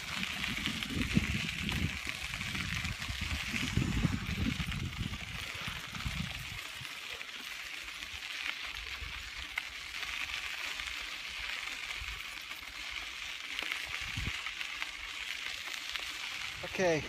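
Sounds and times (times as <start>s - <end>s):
wind buffeting microphone: 0.0s - 6.9s, 13.9s - 14.4s
bicycle tyres on dirt: 0.0s - 17.0s.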